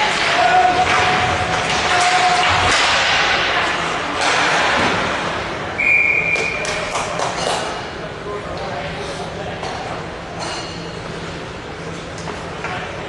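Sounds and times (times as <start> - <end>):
hockey sticks and puck clacking: 0.0 - 5.4, 6.2 - 7.8, 11.9 - 13.0
short high whistle blast: 5.8 - 6.6.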